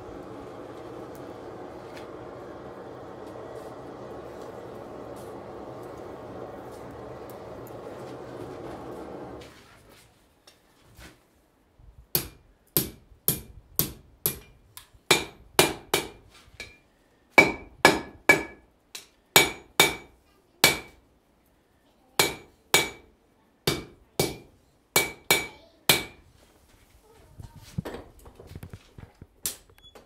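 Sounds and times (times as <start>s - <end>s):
hammer striking iron on anvil: 12.2s - 14.5s, 15.1s - 16.8s, 17.4s - 21.0s, 22.2s - 23.0s, 23.7s - 26.2s.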